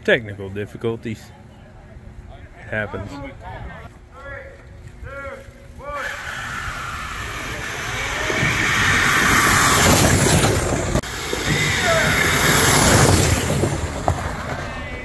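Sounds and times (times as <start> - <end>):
belt sanders running: 5.8 - 14.6.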